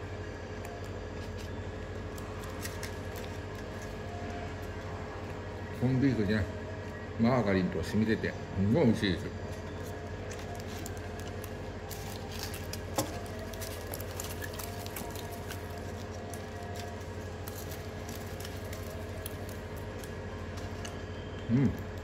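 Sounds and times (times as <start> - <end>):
steady low hum: 0.0 - 22.0
foil wrapper crackling: 0.6 - 5.6, 9.6 - 22.0.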